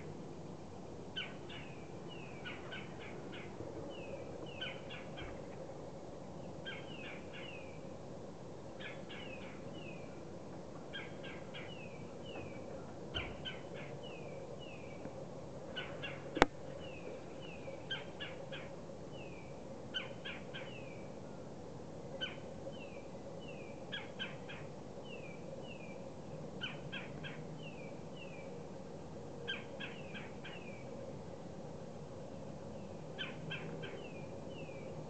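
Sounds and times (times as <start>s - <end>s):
bird calls: 1.2s - 5.6s, 6.4s - 7.8s, 8.8s - 10.2s, 10.9s - 15.1s, 15.7s - 21.1s, 22.1s - 26.0s, 26.6s - 28.5s, 29.4s - 30.9s, 32.8s - 35.0s.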